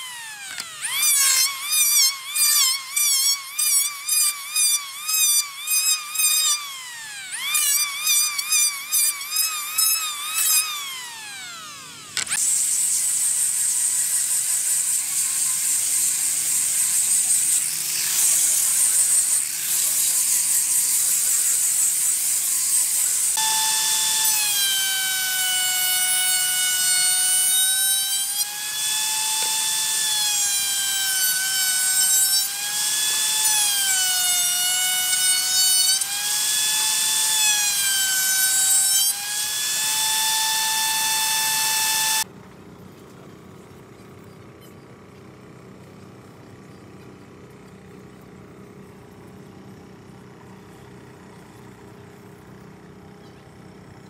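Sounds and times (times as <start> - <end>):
angle grinder high whine: 0.0 - 15.0, 22.5 - 42.3
circular saw cutting plywood: 0.0 - 42.3
electric hand planer whining: 0.0 - 42.3.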